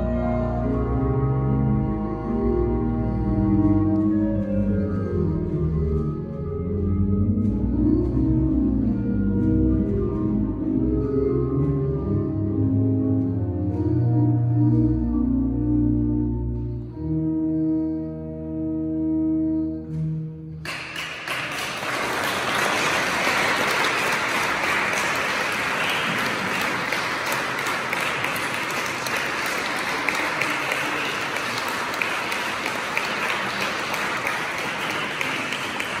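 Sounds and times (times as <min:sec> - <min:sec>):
pipe organ chord: 0:00.0 - 0:20.5
audience applause: 0:20.7 - 0:36.0.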